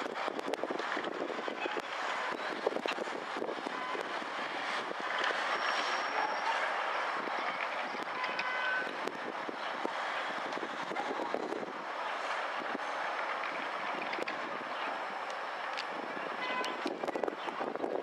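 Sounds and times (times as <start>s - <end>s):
distant road traffic: 0.0s - 18.0s
faint clicks: 15.3s - 15.9s.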